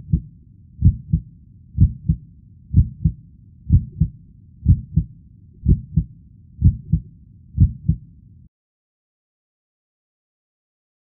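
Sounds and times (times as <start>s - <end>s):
heartbeat double thump: 2.8s - 4.1s, 4.7s - 7.0s, 7.6s - 8.0s.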